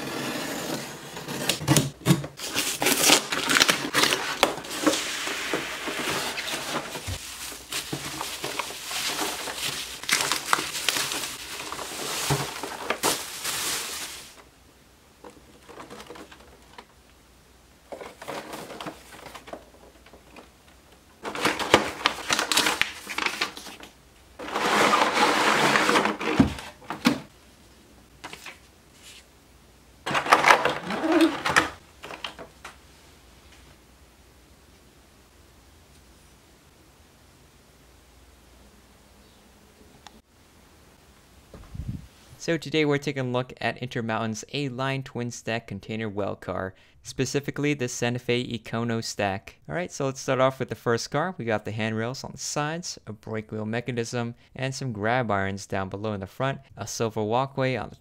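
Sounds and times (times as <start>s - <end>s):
packing tape tearing: 1.5s - 5.3s, 21.3s - 23.7s
packaging rustling: 1.8s - 14.4s, 15.2s - 16.9s, 17.9s - 20.5s, 21.2s - 27.3s, 30.1s - 32.8s
cardboard flaps scraping: 21.2s - 27.3s.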